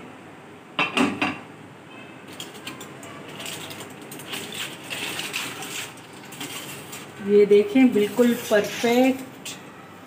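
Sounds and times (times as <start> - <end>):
metallic clatter: 2.3 - 7.2
aluminium foil crinkling: 2.3 - 9.6.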